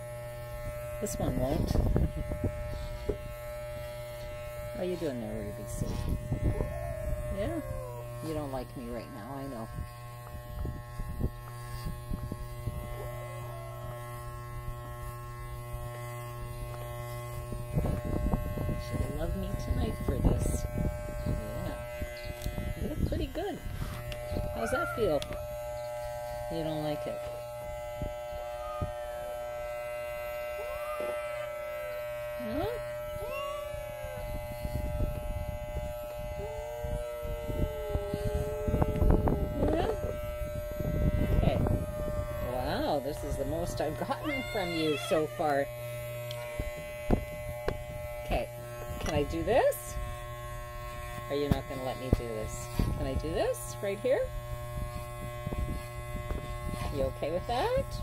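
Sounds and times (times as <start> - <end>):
electric clippers buzzing: 0.0 - 58.0
cat yowling: 6.5 - 8.2, 24.6 - 25.2, 28.6 - 29.0, 30.6 - 31.6, 33.0 - 34.3, 44.1 - 45.5.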